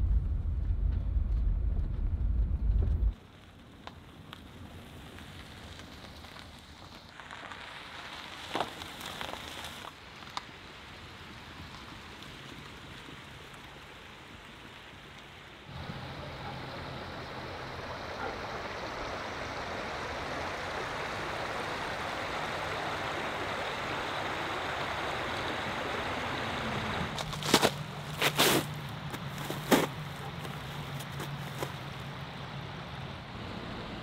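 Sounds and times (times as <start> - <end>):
river water rushing: 12.9 - 34.0.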